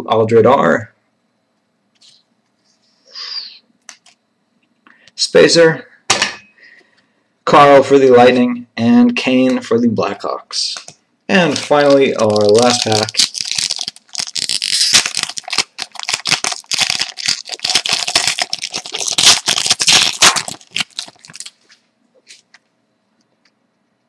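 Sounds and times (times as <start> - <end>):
foil wrapper tearing and crinkling: 11.4 - 21.6.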